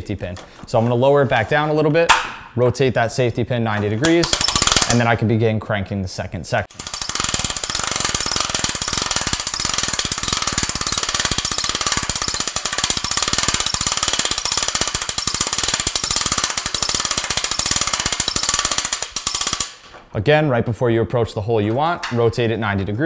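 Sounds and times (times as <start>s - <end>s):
winch ratchet clicking: 4.0s - 5.0s, 6.7s - 19.8s.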